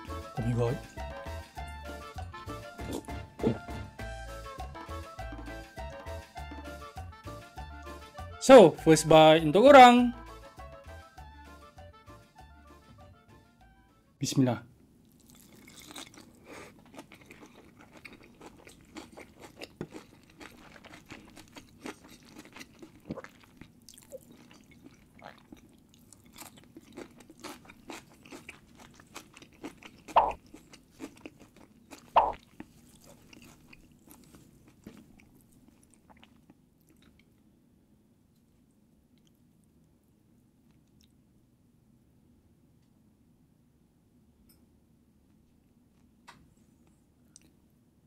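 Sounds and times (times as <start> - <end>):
person chewing food: 2.6 - 3.9, 15.1 - 37.5
wet mouth clicks and smacks: 30.1 - 30.4, 32.2 - 32.4.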